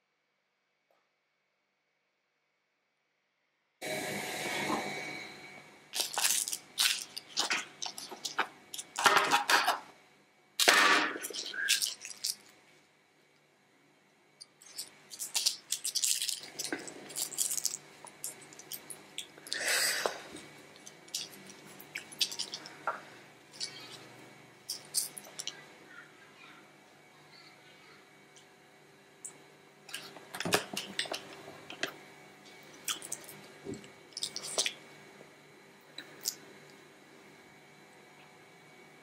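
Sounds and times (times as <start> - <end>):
pastry crust crackling: 6.0 - 9.9, 10.6 - 12.6, 14.4 - 25.6.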